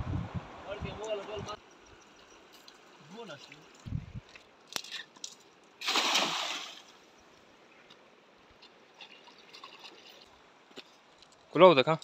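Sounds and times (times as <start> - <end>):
water trickling and dripping: 1.0 - 5.8, 6.4 - 11.6
net splashing into water: 5.8 - 6.9.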